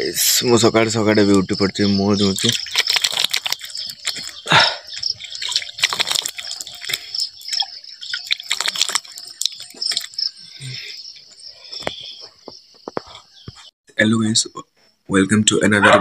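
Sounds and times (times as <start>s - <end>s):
water splashing onto face: 2.2s - 10.9s.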